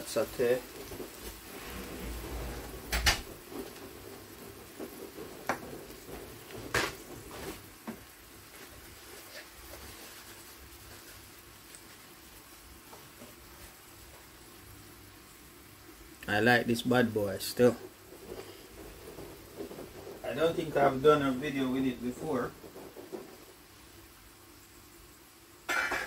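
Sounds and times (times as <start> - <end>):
kitchen knocks and clatters: 0.7 - 10.0, 22.1 - 23.6, 25.7 - 26.0.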